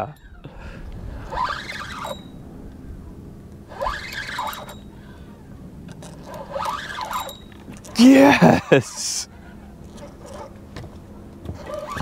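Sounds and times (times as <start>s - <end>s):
fishing reel whirring: 1.2s - 2.4s, 3.7s - 5.3s, 6.0s - 9.2s.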